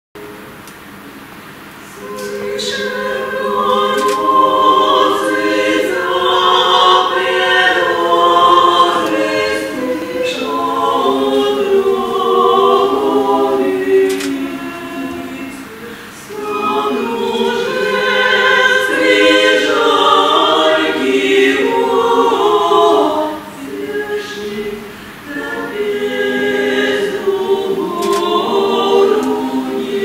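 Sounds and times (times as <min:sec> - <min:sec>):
women's vocal ensemble singing harmony: 0:01.8 - 0:30.0.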